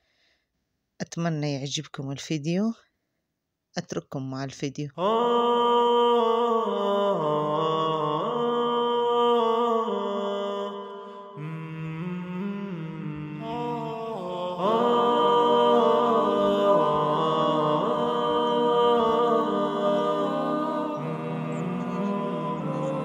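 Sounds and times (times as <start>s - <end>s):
voices chanting and humming: 5.0s - 23.0s.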